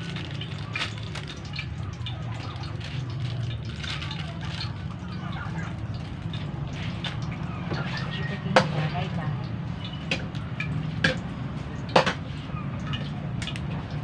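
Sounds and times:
noodle packet rustling: 0:00.0 - 0:07.5.

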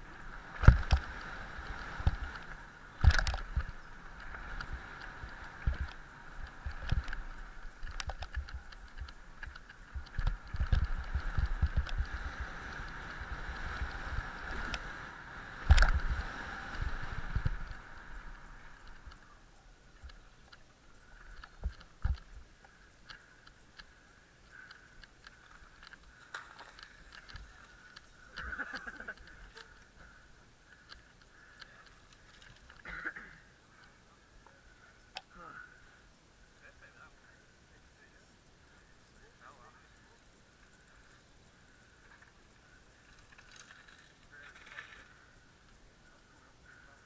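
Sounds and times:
bike rushing downhill: 0:00.0 - 0:37.5, 0:39.8 - 0:47.0
bike rattling and knocking: 0:00.4 - 0:17.8.

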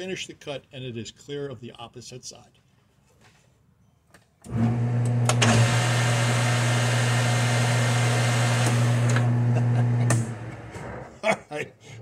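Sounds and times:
lathe motor hum: 0:04.5 - 0:11.0.

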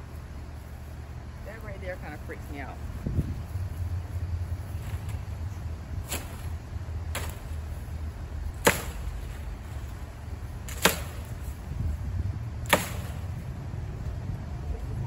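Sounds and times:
low rumble: 0:00.0 - 0:15.0
machete chopping palm fronds: 0:06.0 - 0:07.9, 0:08.5 - 0:11.7, 0:12.6 - 0:13.6.

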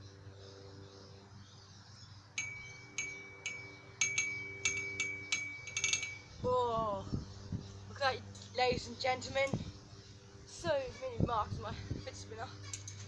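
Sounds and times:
faint steady hum: 0:00.0 - 0:13.0
trampoline springs pinging: 0:02.4 - 0:07.6, 0:10.6 - 0:13.0.

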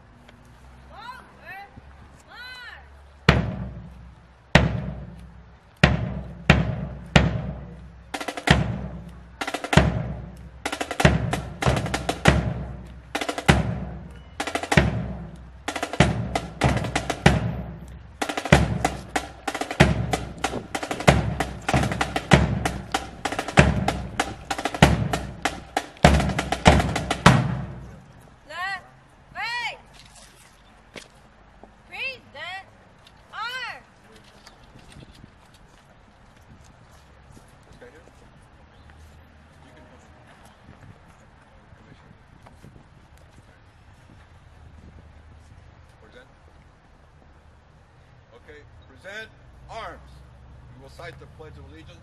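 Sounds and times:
snare drum hits and rolls: 0:03.3 - 0:04.0, 0:04.6 - 0:28.1
bass drum beats: 0:03.3 - 0:28.2.

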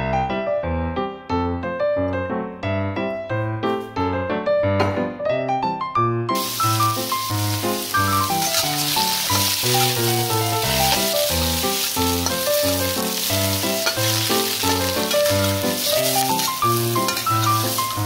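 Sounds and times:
background music: 0:00.0 - 0:18.0
metal spatula stir-frying in wok: 0:06.4 - 0:18.0
shrimp sizzling in hot oil: 0:06.4 - 0:18.0.

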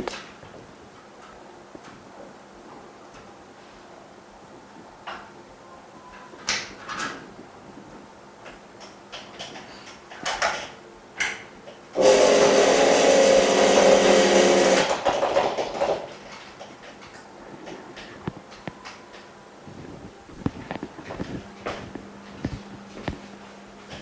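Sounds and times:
vacuum pump humming: 0:11.8 - 0:24.0.

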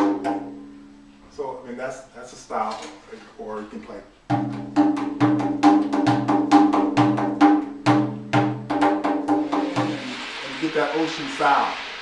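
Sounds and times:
frame drum played by hand: 0:00.0 - 0:00.9, 0:04.3 - 0:10.4.

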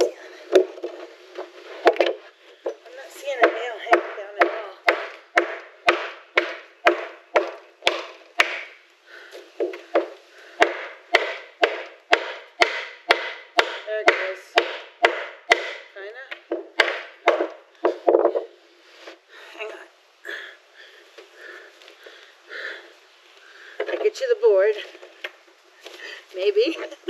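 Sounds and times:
hammer striking wood: 0:03.4 - 0:08.8, 0:09.6 - 0:18.5.

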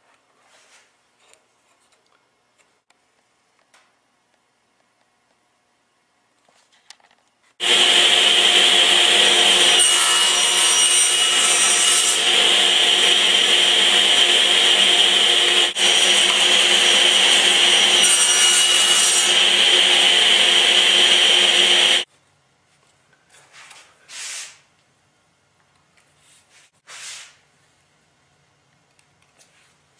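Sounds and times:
power tool cutting wood: 0:07.6 - 0:22.1.

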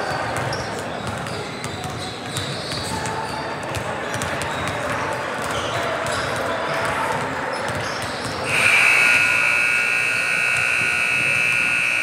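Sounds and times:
scoreboard horn blast: 0:08.5 - 0:12.0.

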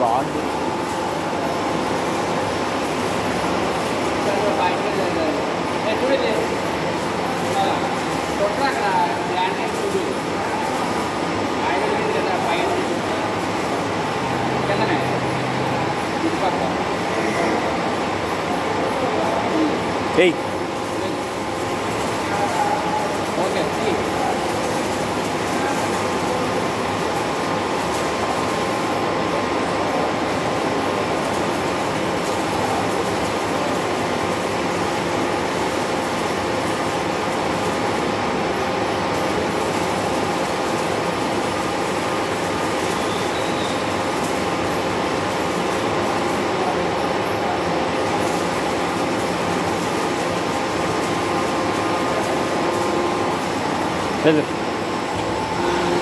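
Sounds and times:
electric motor and pump humming: 0:00.0 - 0:56.0
faint constant whine: 0:00.0 - 0:56.0
hydraulic pump running: 0:48.0 - 0:56.0.

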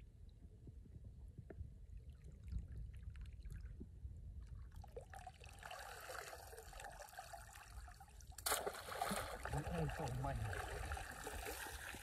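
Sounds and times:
small splashes: 0:05.0 - 0:12.0
water pouring off fishing net: 0:05.1 - 0:12.0.

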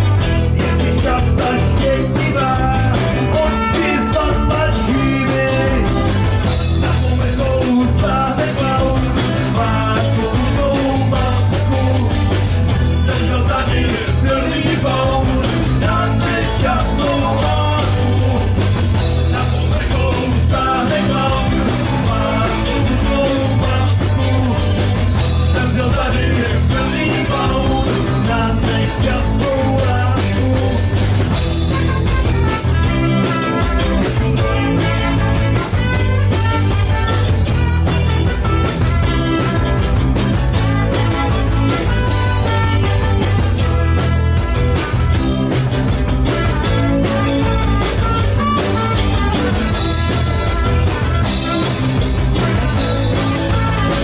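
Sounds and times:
rock band playing: 0:00.0 - 0:54.0
person singing: 0:00.4 - 0:31.0.

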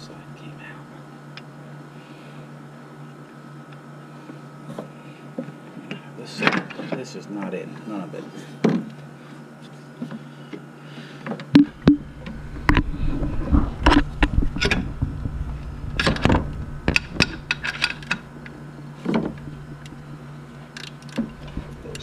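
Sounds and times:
steady low hum: 0:00.0 - 0:22.0
low rumble: 0:11.6 - 0:20.5, 0:21.3 - 0:22.0.

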